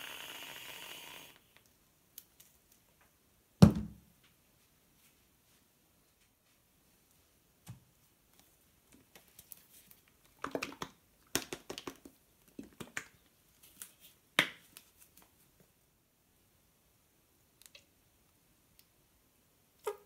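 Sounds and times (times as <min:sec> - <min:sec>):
plastic bottle thump: 0:03.6 - 0:04.0.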